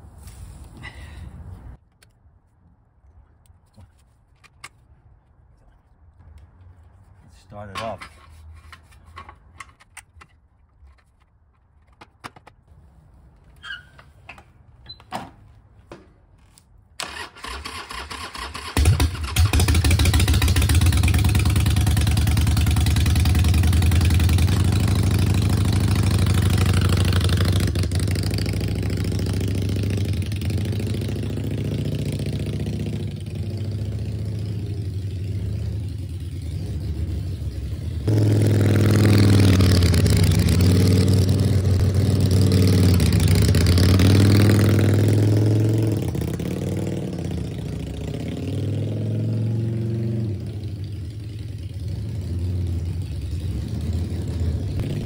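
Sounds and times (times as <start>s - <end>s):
motorcycle engine running: 18.8s - 55.0s.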